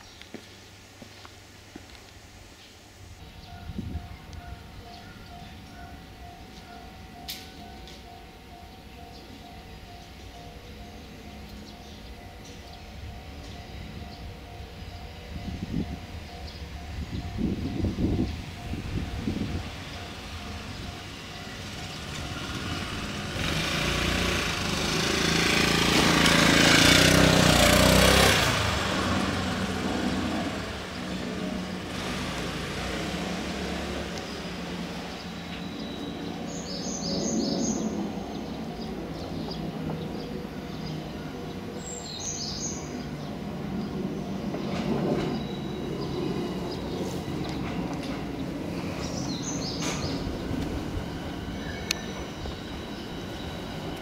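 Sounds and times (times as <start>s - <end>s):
electric train rumbling on track: 0.0s - 54.0s.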